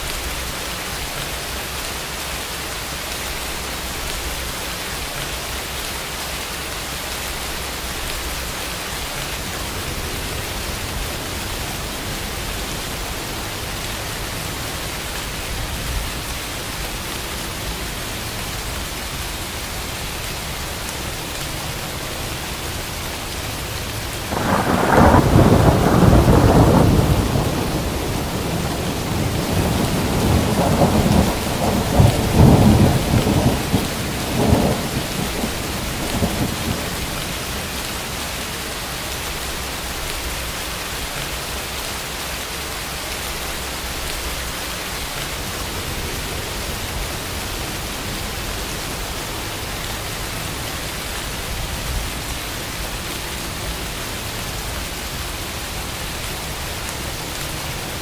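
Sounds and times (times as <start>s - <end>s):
steady rain hiss: 0.0s - 58.0s
thunder rumbling and cracking: 24.2s - 38.2s.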